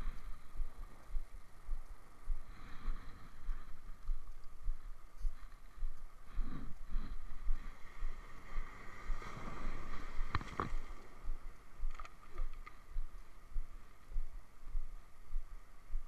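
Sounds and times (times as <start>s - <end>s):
microphone handling knocks and rustling: 10.2s - 11.0s.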